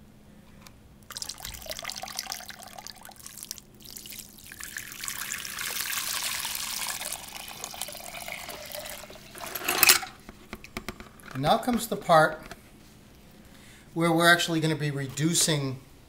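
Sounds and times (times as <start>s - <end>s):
ink pouring in a splashing stream: 1.0s - 9.8s.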